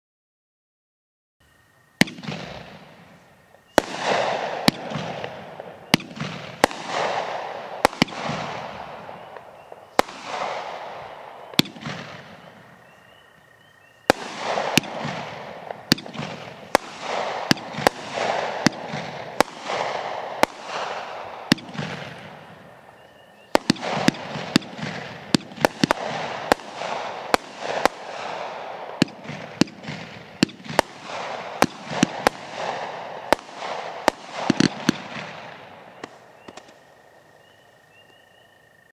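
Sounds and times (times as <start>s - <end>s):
firework cake firing bangs: 2.0s - 3.1s, 3.7s - 12.8s, 14.0s - 22.7s, 23.5s - 36.8s
loud firework crack: 2.0s - 12.9s, 14.0s - 36.8s
firework hiss: 14.1s - 36.9s.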